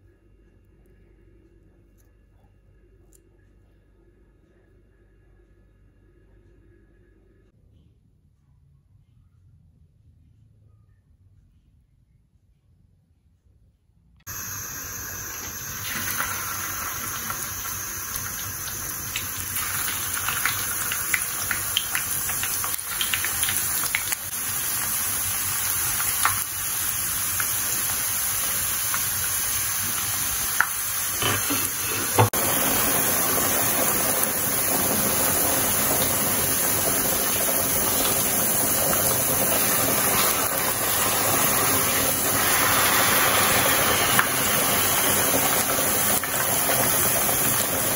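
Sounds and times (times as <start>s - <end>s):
potatoes deep-frying in oil: 14.3s - 47.9s
crackling pops of frying oil: 19.1s - 24.9s, 25.6s - 27.6s.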